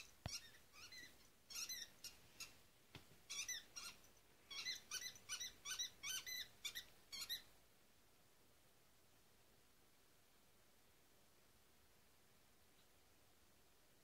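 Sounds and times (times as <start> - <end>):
squeaky dog toy squeaking: 0.0 - 2.5, 3.3 - 7.5.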